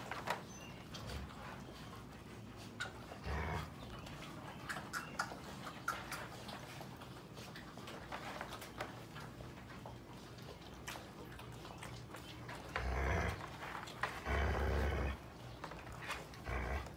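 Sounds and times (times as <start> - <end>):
puppies scuffling: 0.0 - 16.9.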